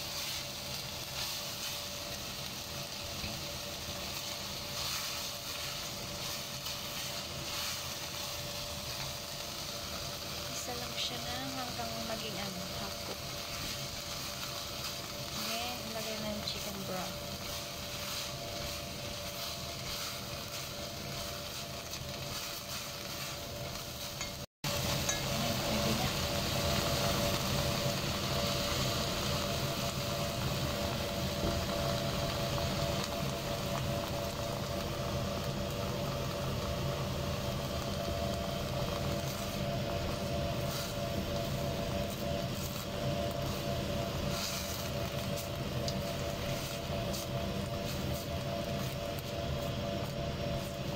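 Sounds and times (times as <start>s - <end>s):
vegetables sizzling in oil: 0.0s - 50.9s
spatula scraping a pot: 13.0s - 24.4s.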